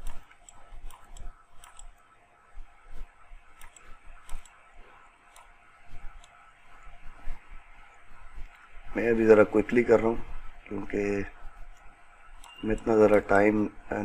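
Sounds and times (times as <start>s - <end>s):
computer input device clicks: 0.0s - 2.1s, 3.5s - 6.5s, 11.7s - 13.5s.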